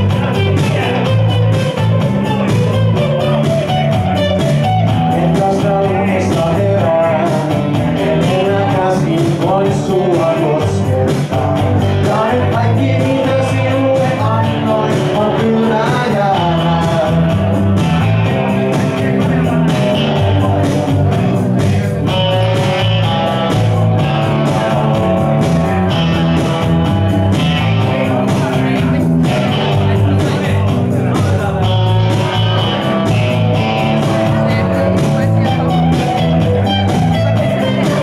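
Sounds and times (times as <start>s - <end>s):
electric bass: 0.0s - 38.0s
electric guitar: 0.0s - 38.0s.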